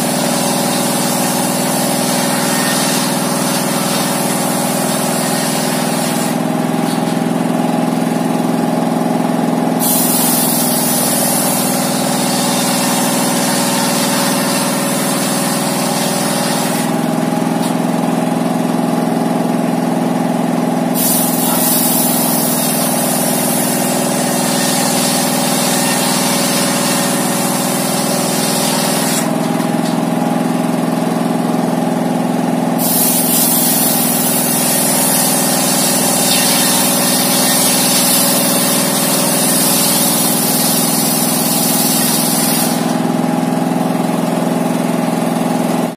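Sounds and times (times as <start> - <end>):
diesel engine running: 0.0 - 45.9
circular saw blade rasping: 0.1 - 7.6, 9.8 - 17.9, 21.0 - 30.4, 32.8 - 43.0.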